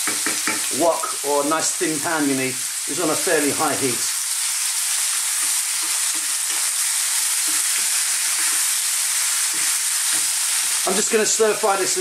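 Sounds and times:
food sizzling in a wok: 0:00.0 - 0:12.0
wooden spoon scraping: 0:05.3 - 0:10.8.

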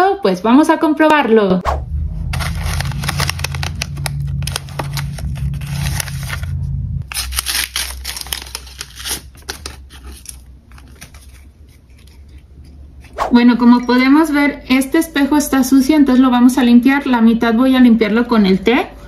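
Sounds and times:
paper envelope tearing open: 0:02.3 - 0:12.2
paper tea bags rustling: 0:02.4 - 0:12.5.

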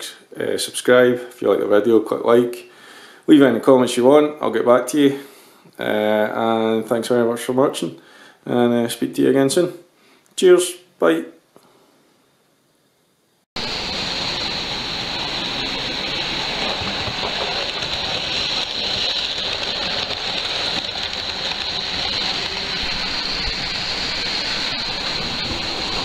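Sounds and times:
model train rumbling on track: 0:13.6 - 0:26.0.

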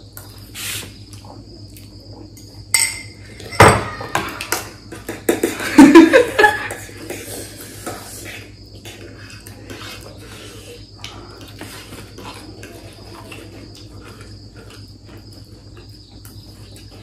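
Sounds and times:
metal forks clinking on plates: 0:02.7 - 0:04.2.

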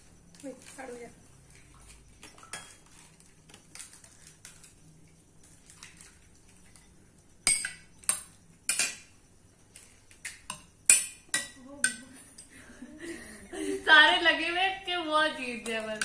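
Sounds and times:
metal spoons clinking on bowls: 0:01.6 - 0:04.7, 0:05.4 - 0:09.1, 0:09.7 - 0:12.6, 0:15.5 - 0:16.0.

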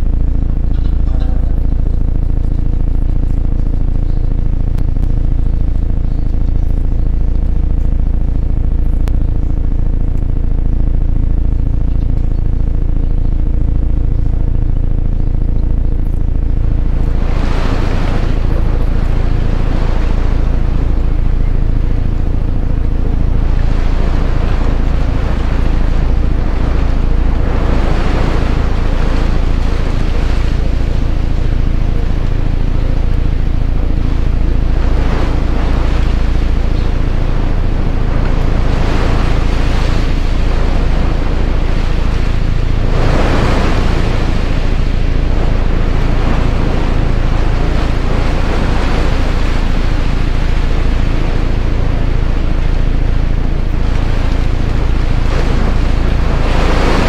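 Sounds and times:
low drone: 0:00.0 - 0:57.0
washes of noise: 0:16.2 - 0:57.0.

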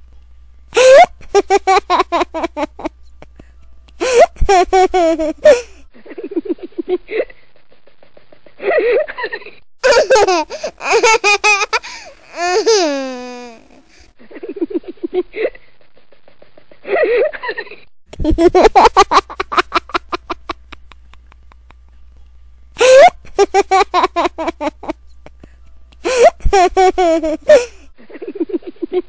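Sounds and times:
baby laughing: 0:00.8 - 0:03.0, 0:04.0 - 0:05.8, 0:09.8 - 0:13.6, 0:18.2 - 0:20.9, 0:22.8 - 0:25.0, 0:26.0 - 0:27.8.

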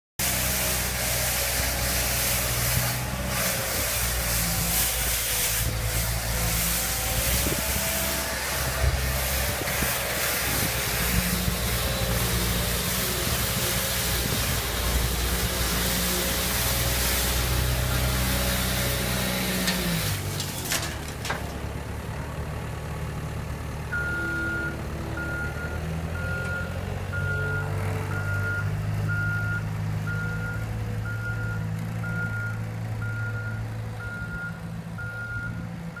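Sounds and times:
sweeper brush hissing: 0:00.2 - 0:17.7
loader engine running: 0:00.2 - 0:36.0
reversing alarm beeping: 0:23.9 - 0:36.0.

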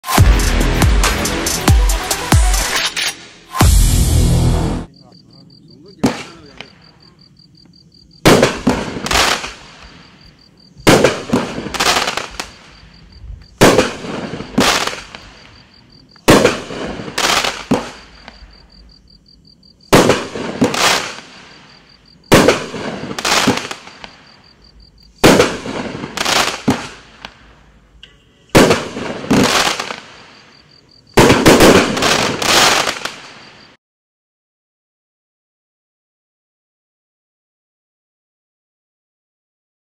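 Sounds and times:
firework bangs: 0:05.8 - 0:07.1, 0:08.2 - 0:18.8, 0:19.8 - 0:24.6, 0:25.2 - 0:27.7, 0:28.5 - 0:33.8.

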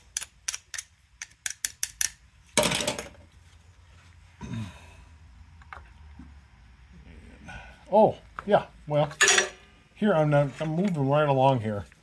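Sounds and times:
metal tools clicking and clinking: 0:00.0 - 0:03.2, 0:09.1 - 0:09.7.

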